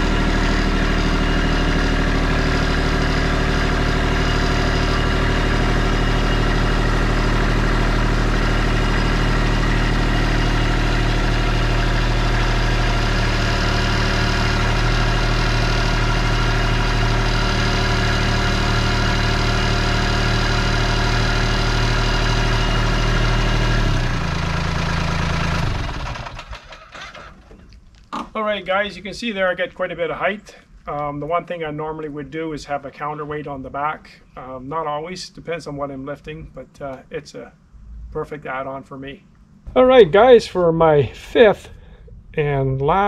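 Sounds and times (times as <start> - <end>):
tractor diesel engine running: 0.0 - 27.6.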